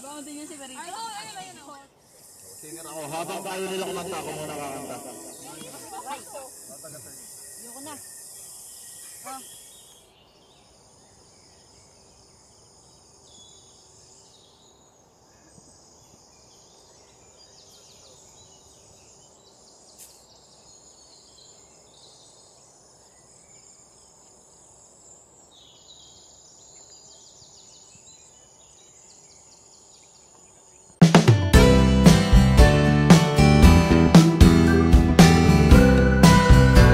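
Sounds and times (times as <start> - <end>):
insect trills: 0.0 - 31.0
low outdoor background noise: 0.0 - 31.4
high-pitched insect buzz: 2.0 - 10.0.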